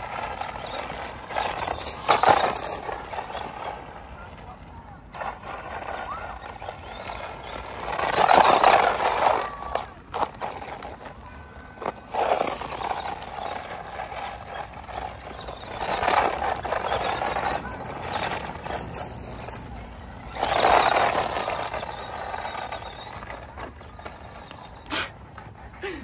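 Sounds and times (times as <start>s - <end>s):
toy truck motor whine: 0.0s - 4.3s, 5.2s - 26.0s
tyres scrabbling on grit: 0.0s - 26.0s.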